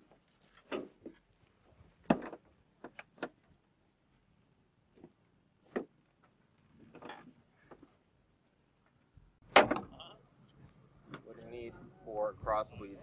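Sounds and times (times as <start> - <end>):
soft rustle: 0.0 - 2.1.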